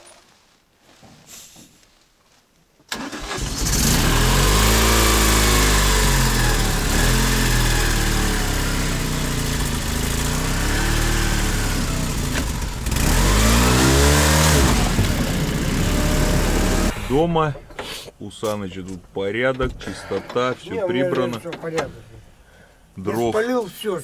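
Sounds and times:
off-road vehicle engine revving: 3.0s - 17.4s.

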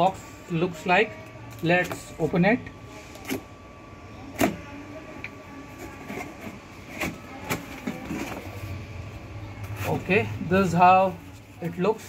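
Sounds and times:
cardboard scraping and rustling: 5.6s - 8.8s.

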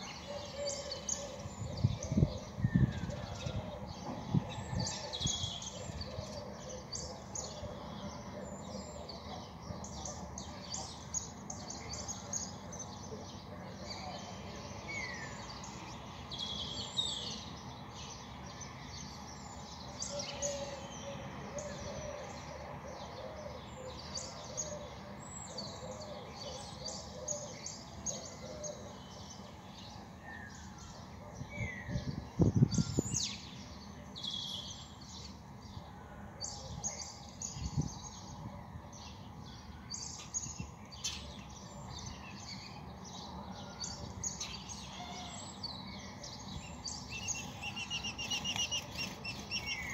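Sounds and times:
small birds chirping: 36.5s - 49.9s.

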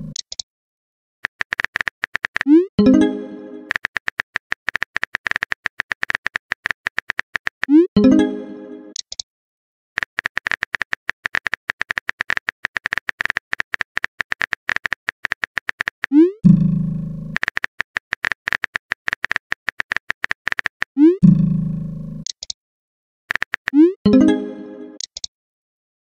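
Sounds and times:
phone keyboard typing clicks: 1.2s - 2.6s, 3.6s - 7.8s, 10.0s - 16.2s, 17.4s - 21.0s, 22.2s - 22.6s, 23.3s - 23.8s, 25.0s - 25.3s.

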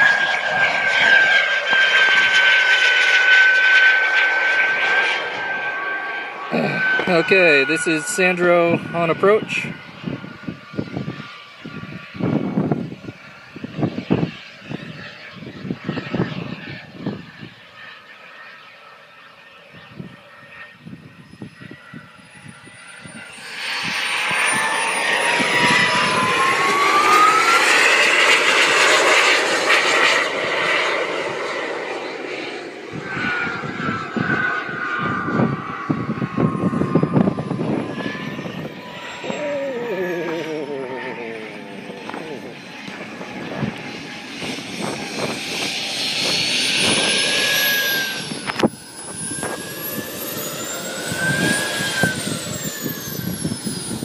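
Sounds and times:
model jet whine: 0.0s - 54.0s
wind buffeting microphone: 6.5s - 17.6s, 19.8s - 32.0s, 32.8s - 54.0s
gusty rushing noise: 32.9s - 39.8s, 41.1s - 54.0s
person speaking: 39.2s - 42.6s.

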